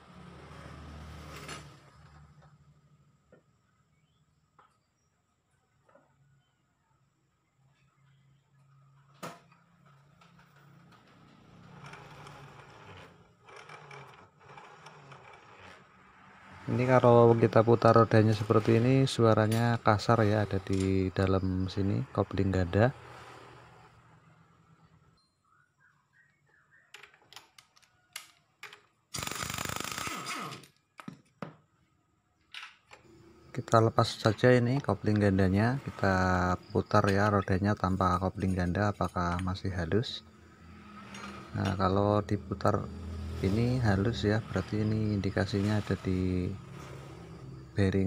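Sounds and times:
faint rough wheel noise: 8.0s - 25.6s, 33.0s - 48.0s
air impact wrench running: 29.1s - 30.6s.

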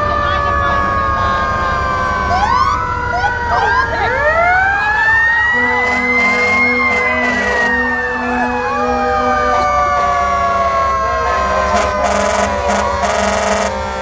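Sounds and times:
sirens wailing: 0.0s - 14.0s
sirens warbling: 0.0s - 14.0s
vehicles rumbling past: 0.0s - 14.0s.

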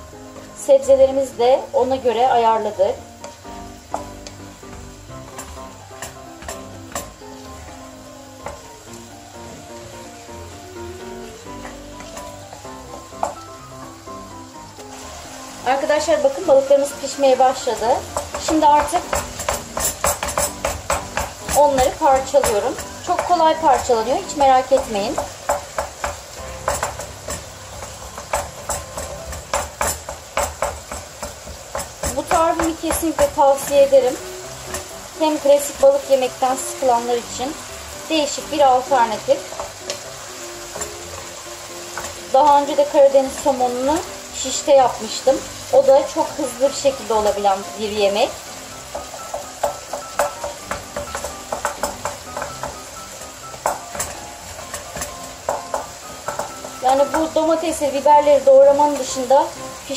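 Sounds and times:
food sizzling in a frying pan: 0.0s - 59.9s
wooden spatula scraping a pan: 15.8s - 36.5s.

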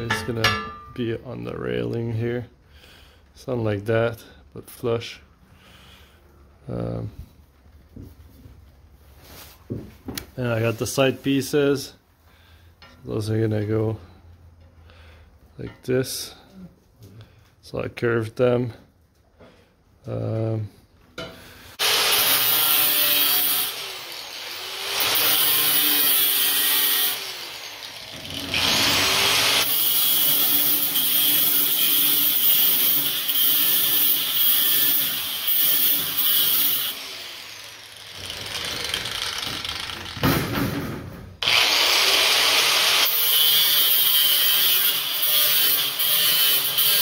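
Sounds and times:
angle grinder cutting metal: 21.8s - 40.2s, 41.4s - 47.0s.

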